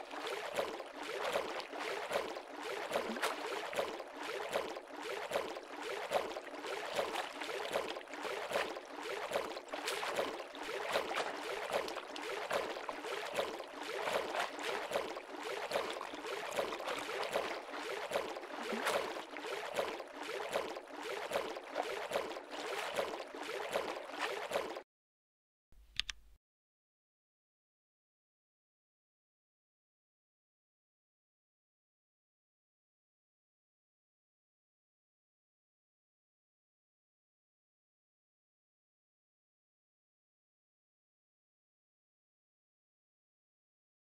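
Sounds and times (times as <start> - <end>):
water sloshing and splashing: 0.0 - 24.8.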